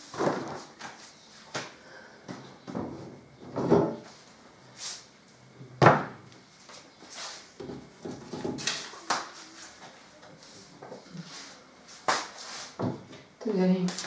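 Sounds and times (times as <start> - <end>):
household knocks and bumps: 2.3 - 4.0.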